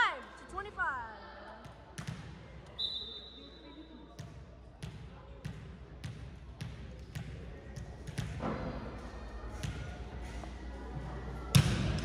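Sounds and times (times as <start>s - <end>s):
ball bouncing on gym floor: 4.2s - 8.8s, 9.6s - 9.9s, 11.5s - 12.0s.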